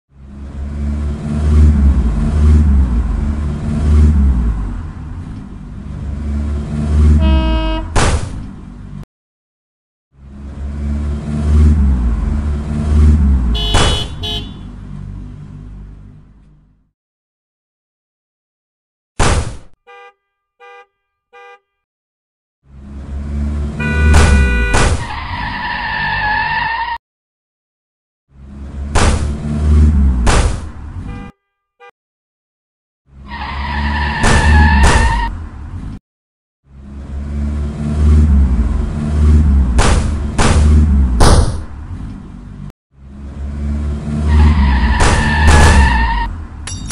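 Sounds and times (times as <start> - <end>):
car horn: 7.1 - 8.0, 13.5 - 14.8, 19.8 - 21.8, 23.8 - 24.9, 31.0 - 32.0
car engine rumble: 10.2 - 16.9, 36.7 - 46.9.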